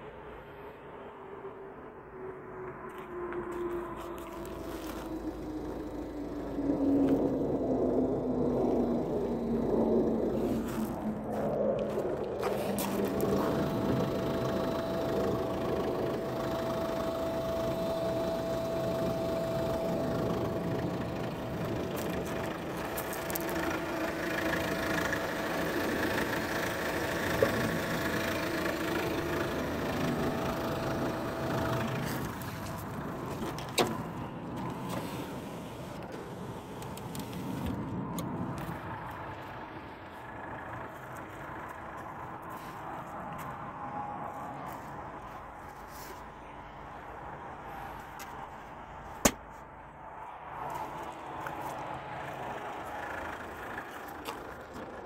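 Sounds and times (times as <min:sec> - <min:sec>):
thin whine: 0:00.0 - 0:39.7
car engine idling: 0:02.8 - 0:50.0, 0:50.6 - 0:55.0.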